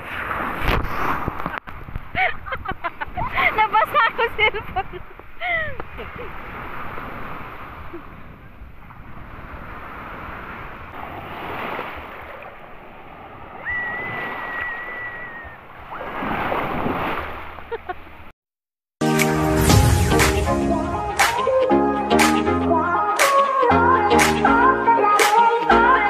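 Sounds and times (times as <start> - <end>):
waves breaking on shore: 0.0 - 18.3
long high steady note: 19.0 - 23.2
music: 19.0 - 26.0.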